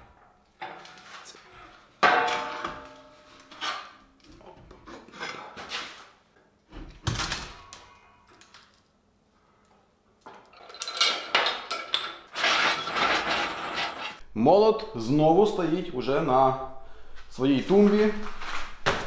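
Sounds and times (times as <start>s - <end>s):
metal clanks and clinks: 10.3s - 14.2s.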